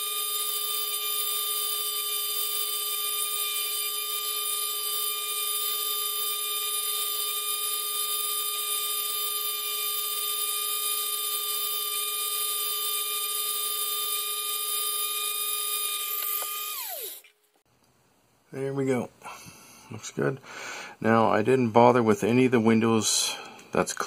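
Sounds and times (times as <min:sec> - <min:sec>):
rotary tool spinning down: 0:00.0 - 0:17.3
rotary tool whining: 0:00.0 - 0:17.4.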